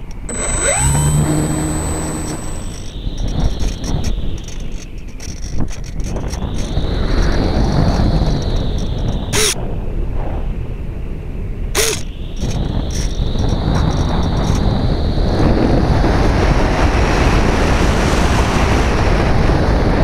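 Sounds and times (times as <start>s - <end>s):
wind rushing over glider: 0.3s - 20.0s.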